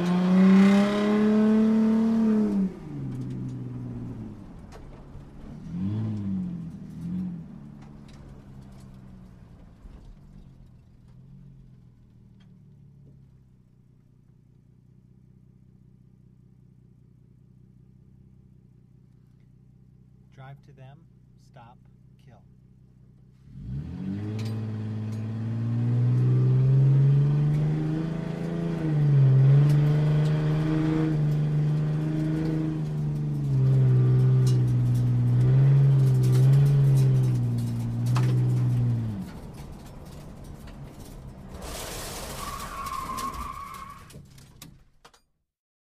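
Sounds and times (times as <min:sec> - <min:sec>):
sports car engine revving: 0:00.0 - 0:04.4, 0:23.4 - 0:39.7.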